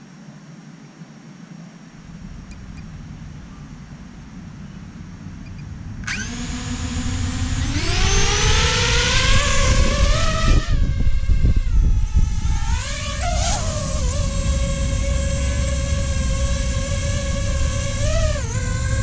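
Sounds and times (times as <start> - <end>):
wind rumble on microphone: 1.8 - 19.0
drone propellers whining: 1.9 - 19.0.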